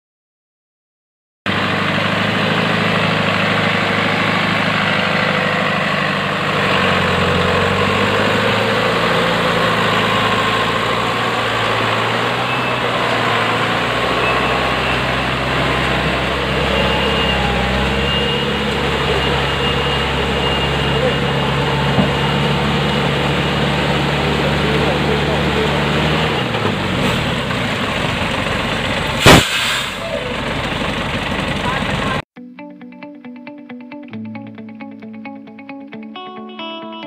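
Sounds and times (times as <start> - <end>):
wheels churning muddy water: 1.5 - 29.3
truck engine running under load: 1.5 - 32.2.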